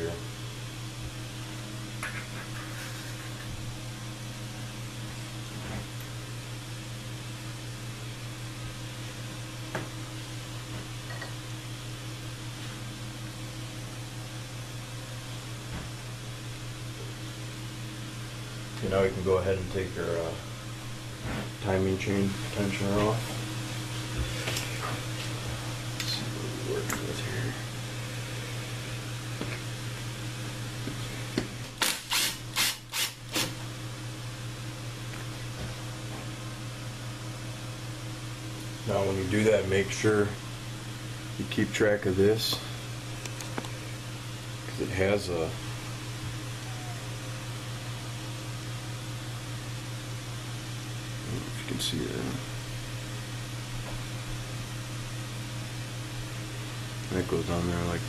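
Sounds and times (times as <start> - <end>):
low background hum: 0.0 - 58.0.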